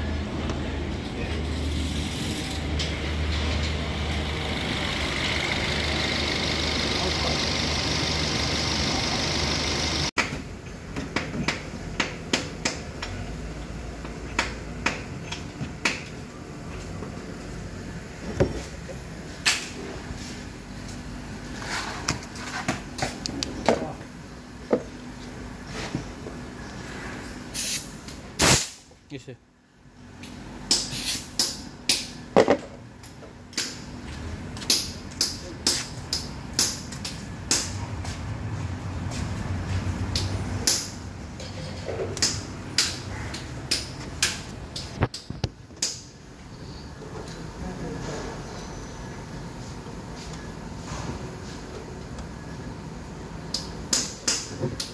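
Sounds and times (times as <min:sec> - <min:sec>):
car engine with hissing compressor: 0:00.0 - 0:10.7, 0:24.2 - 0:28.9, 0:29.7 - 0:54.9.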